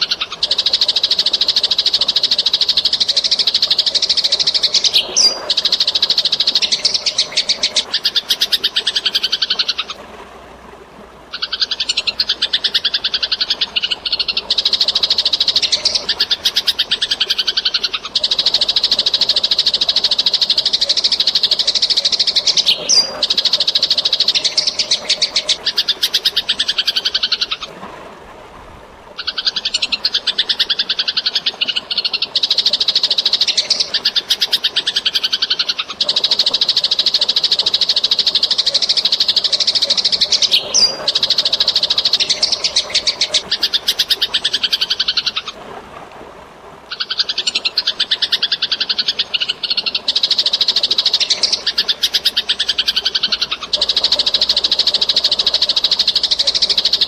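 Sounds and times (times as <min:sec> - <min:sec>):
running water: 0:00.0 - 0:57.0
sparrows chattering: 0:11.4 - 0:19.4, 0:38.6 - 0:45.5.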